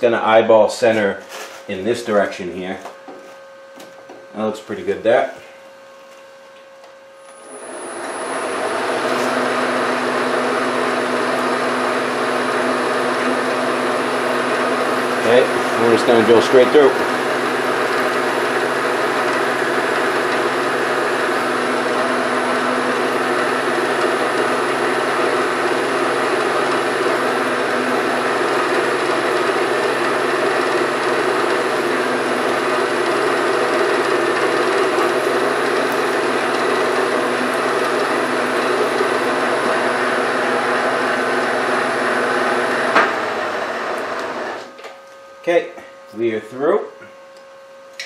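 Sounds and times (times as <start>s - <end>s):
drill bit cutting metal: 7.4s - 43.1s.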